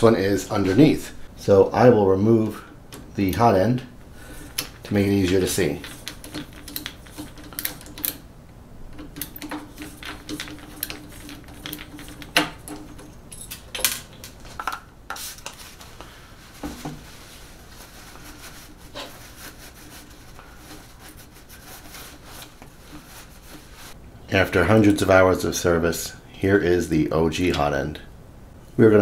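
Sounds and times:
screwdriver and metal parts clicking: 0:04.5 - 0:08.2, 0:09.0 - 0:14.8
cloth rubbing: 0:15.2 - 0:24.0.

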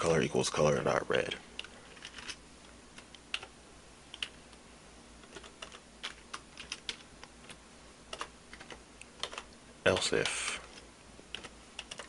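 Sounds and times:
keyboard typing: 0:01.6 - 0:02.4, 0:03.0 - 0:03.5, 0:04.1 - 0:04.4, 0:05.2 - 0:12.0.

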